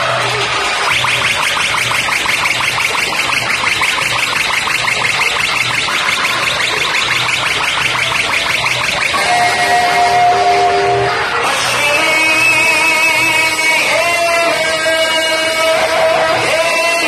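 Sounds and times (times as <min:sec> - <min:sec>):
repeating low bass pulse: 0:00.9 - 0:10.8
pulsing high buzzer tone: 0:00.9 - 0:11.4.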